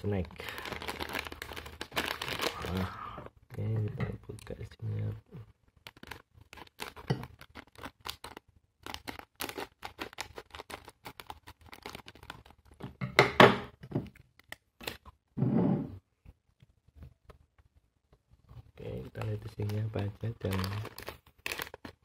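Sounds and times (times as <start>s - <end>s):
plastic packet crinkling: 0.0s - 2.9s, 5.7s - 12.8s, 18.8s - 22.0s.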